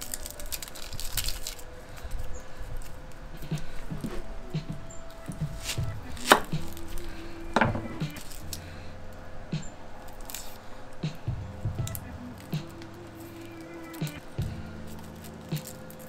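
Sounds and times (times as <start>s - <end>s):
knife peeling onions: 5.4s - 7.1s.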